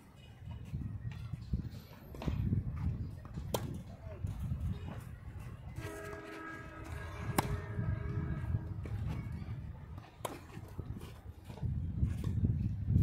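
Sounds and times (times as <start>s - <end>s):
racket hitting tennis ball: 6.0s - 7.8s.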